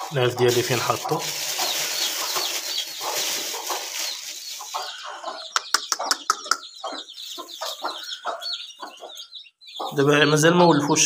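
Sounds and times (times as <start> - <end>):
plastic bag rustling: 0.0 - 5.0
chicks peeping: 0.0 - 11.0
hen clucking: 0.0 - 11.0.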